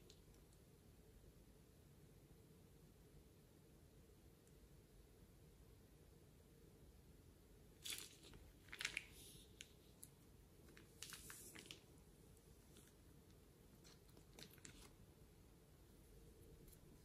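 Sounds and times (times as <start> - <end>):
plastic bag crinkling: 7.8 - 12.0, 13.8 - 15.0.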